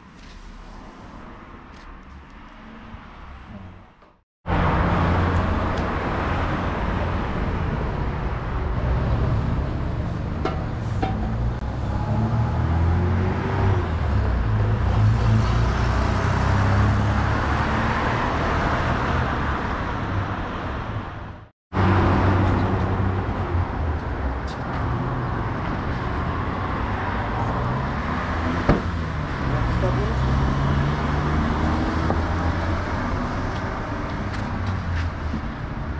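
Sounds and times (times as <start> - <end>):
loud low outdoor rumble: 3.3 - 16.3.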